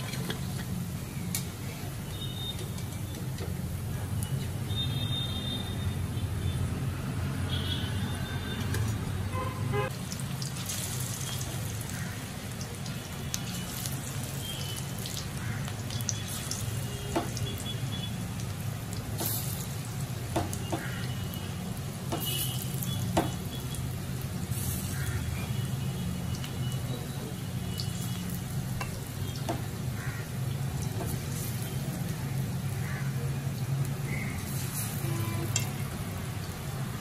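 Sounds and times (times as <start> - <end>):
deep-frying sizzling and bubbling: 0.0 - 37.0
oil popping and clicking: 20.2 - 21.4.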